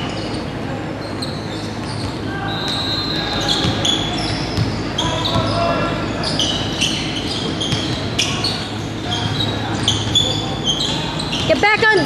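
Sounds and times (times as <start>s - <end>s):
din of gym hall: 0.0s - 12.0s
sneakers squeaking on court: 0.0s - 12.0s
basketball bouncing: 3.6s - 3.9s, 4.5s - 5.6s, 7.6s - 8.1s.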